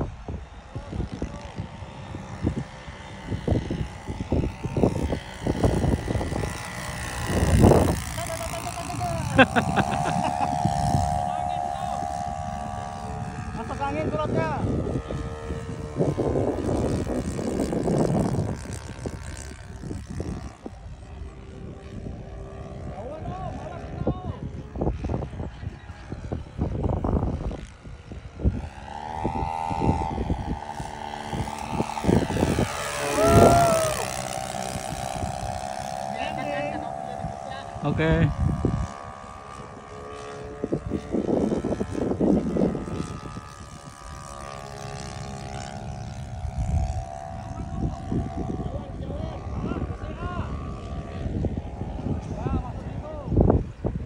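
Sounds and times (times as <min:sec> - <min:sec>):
loud ragged noise near microphone: 0:00.0 - 0:54.0
model plane engine drone: 0:00.0 - 0:54.0
loud rush of noise: 0:32.1 - 0:34.6.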